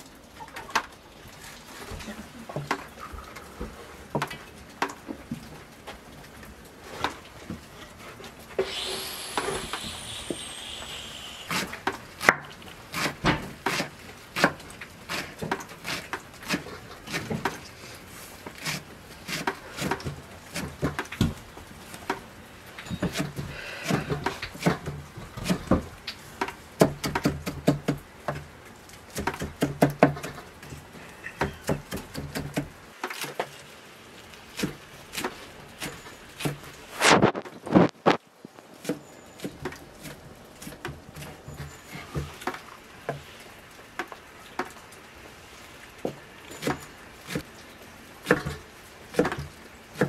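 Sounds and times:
knife chopping herbs on wooden board: 18.6s - 21.1s.

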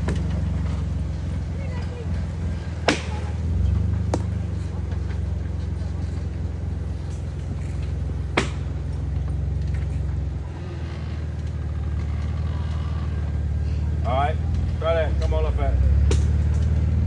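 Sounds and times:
engine rumbling at low revs: 0.0s - 17.0s
sharp crack: 2.7s - 4.4s, 7.0s - 9.9s, 16.0s - 16.9s.

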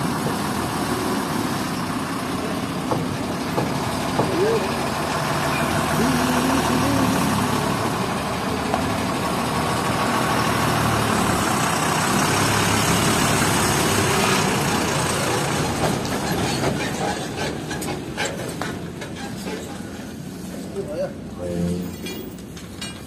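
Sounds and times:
truck engine idling: 0.0s - 20.5s
sharp metallic knocks: 2.8s - 4.6s.

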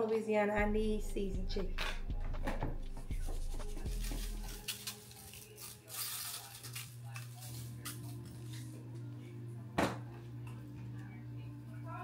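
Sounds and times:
seasoning shaker sprinkling: 3.0s - 8.6s.

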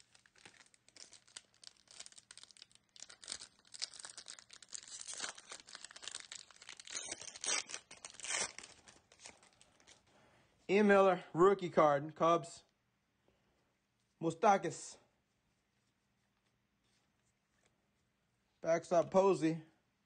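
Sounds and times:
foil wrapper crinkling: 0.0s - 10.0s
foil wrapper ripping: 0.0s - 10.0s.

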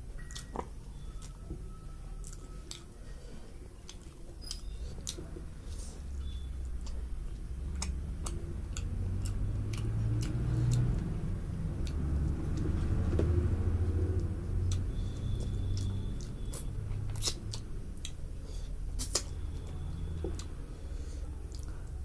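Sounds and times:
chewing and sharp clicks: 0.2s - 1.5s, 2.2s - 2.9s, 3.8s - 5.4s, 6.2s - 13.4s, 14.1s - 18.2s, 19.0s - 20.6s.

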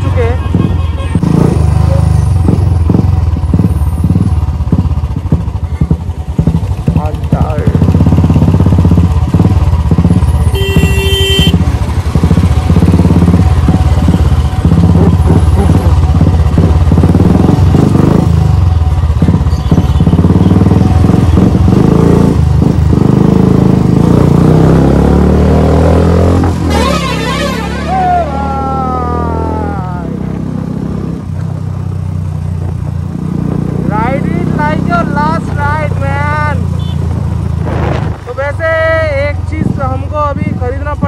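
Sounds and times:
motorcycle engine running: 0.0s - 41.0s.

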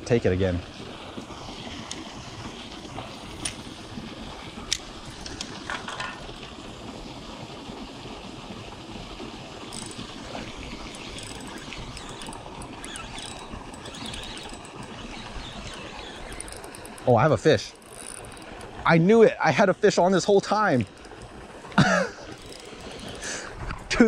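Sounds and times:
sharp clicks: 9.7s - 17.1s.

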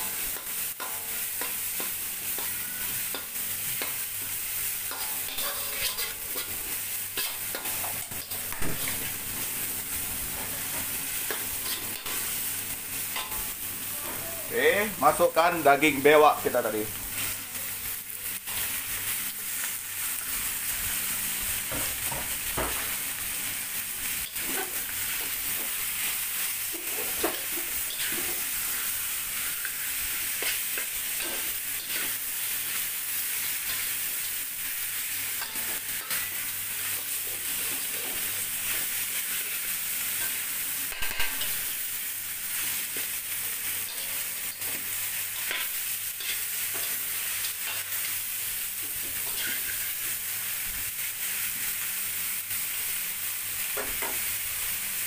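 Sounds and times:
metal utensils scraping a wok: 0.0s - 9.6s, 10.3s - 14.2s, 24.2s - 41.8s, 42.5s - 48.1s, 48.8s - 50.2s
meat sizzling in hot oil: 0.0s - 55.0s.

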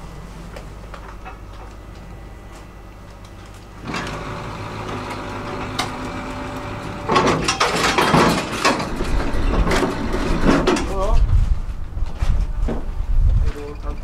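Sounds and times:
ferry machinery humming: 0.0s - 10.9s.

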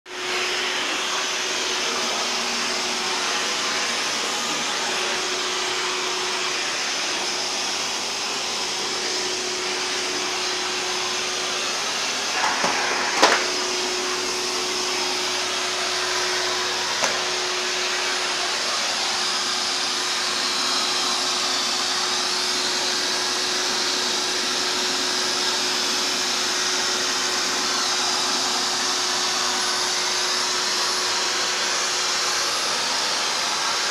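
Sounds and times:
vacuum cleaner running: 0.0s - 33.9s.

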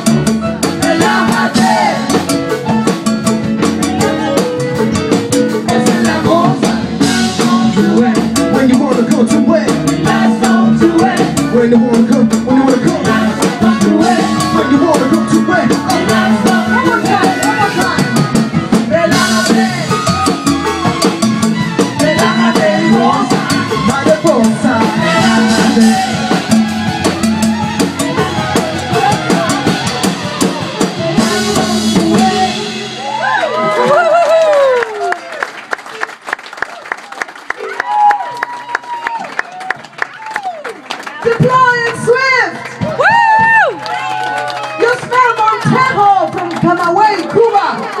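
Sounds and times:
drum hits: 0.0s - 34.1s
live band music: 0.0s - 36.2s, 37.3s - 48.0s.

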